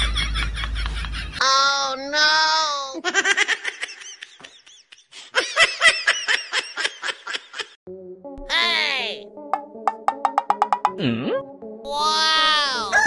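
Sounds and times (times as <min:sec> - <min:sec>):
person laughing: 0:03.0 - 0:07.8.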